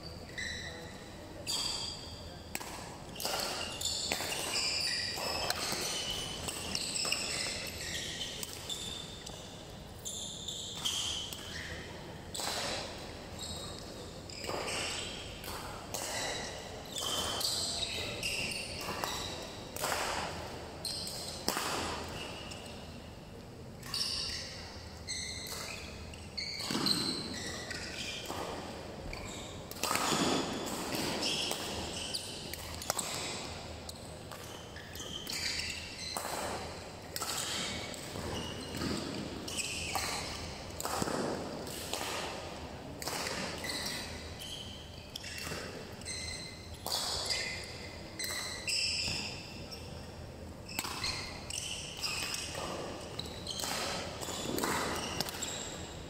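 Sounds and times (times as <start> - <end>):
shoes squeaking on floor: 0.0 - 23.0, 23.8 - 56.0
rackets hitting shuttlecock: 1.4 - 9.5, 12.3 - 22.8, 25.4 - 49.6, 50.7 - 56.0.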